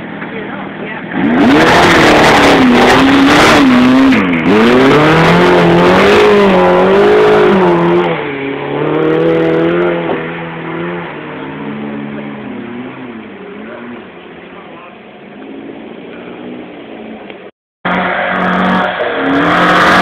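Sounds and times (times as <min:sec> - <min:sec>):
car engine revving hard: 0:01.1 - 0:14.2, 0:17.9 - 0:20.0.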